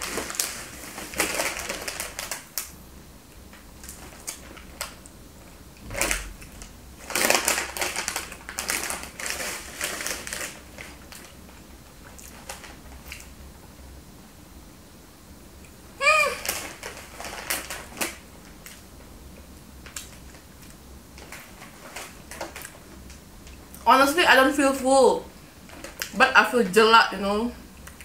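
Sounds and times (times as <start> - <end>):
plastic bag crinkling: 0.0 - 2.7, 3.8 - 5.0, 5.8 - 13.3, 16.0 - 18.8, 19.8 - 23.8, 25.6 - 26.2
crunchy chips chewed: 5.8 - 11.4, 12.0 - 13.4.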